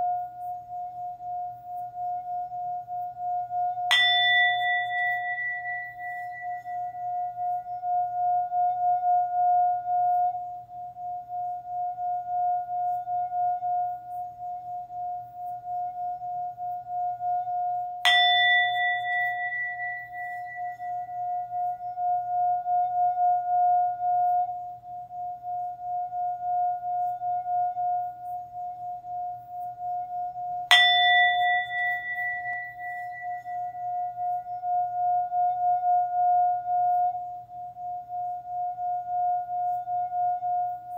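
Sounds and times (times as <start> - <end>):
singing bowl ringing: 0.0 - 40.9.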